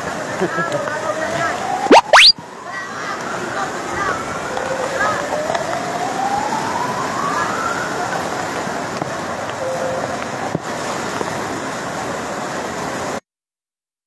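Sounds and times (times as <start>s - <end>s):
floodwater rushing over wall: 0.0s - 13.2s
thin rising tone: 1.9s - 2.4s.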